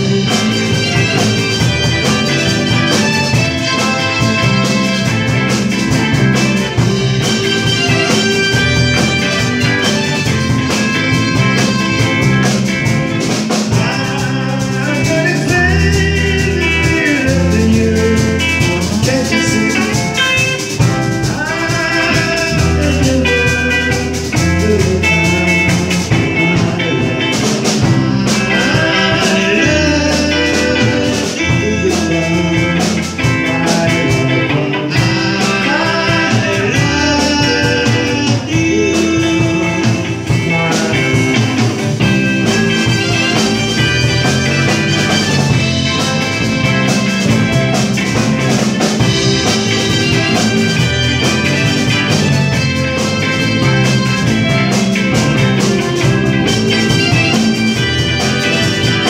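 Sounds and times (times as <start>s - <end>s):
drum kit: 0.0s - 59.0s
electric guitars: 0.0s - 59.0s
steady bass line: 0.0s - 59.0s.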